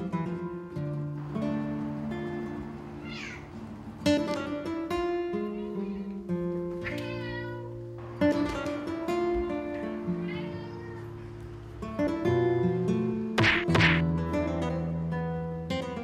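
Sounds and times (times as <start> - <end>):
light background music with guitar: 0.0 - 16.0
cat meowing: 2.9 - 3.6, 6.8 - 7.8, 9.3 - 11.5.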